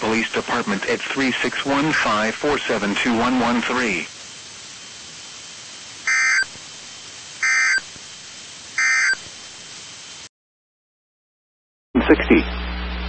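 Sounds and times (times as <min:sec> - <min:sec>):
faint radio hiss: 0:00.0 - 0:10.3
buzzy digital tone bursts: 0:06.0 - 0:06.6, 0:07.4 - 0:07.9, 0:08.8 - 0:09.3.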